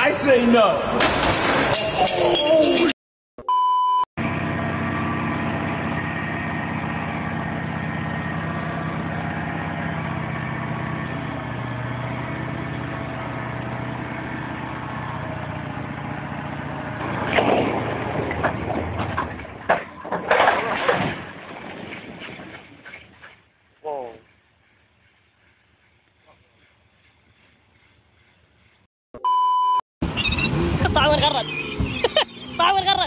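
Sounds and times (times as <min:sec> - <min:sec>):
diesel truck engine running: 0:04.2 - 0:19.8, 0:30.0 - 0:33.0
concrete blocks crashing onto ground: 0:17.3 - 0:23.3.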